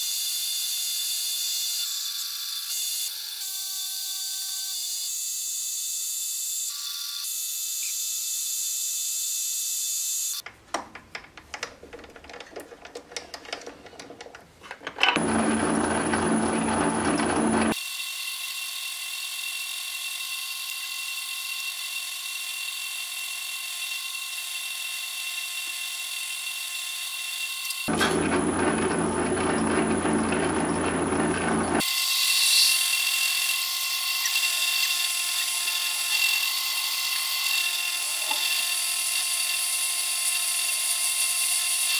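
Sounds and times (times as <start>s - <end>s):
drill cutting steel: 0.0s - 10.4s, 15.2s - 41.9s
metal lathe whining: 13.4s - 17.8s, 27.8s - 41.9s.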